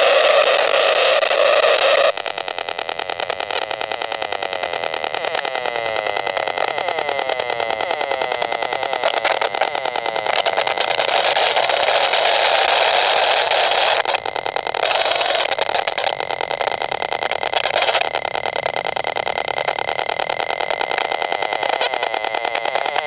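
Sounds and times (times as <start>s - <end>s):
rapid buzzing crackle of ticks: 0.0s - 23.0s.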